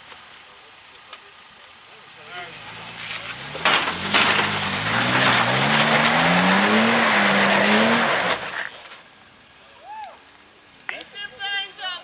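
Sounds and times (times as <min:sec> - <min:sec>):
tires spinning on wet rock: 0:00.0 - 0:09.6
truck engine revving hard: 0:02.2 - 0:08.7.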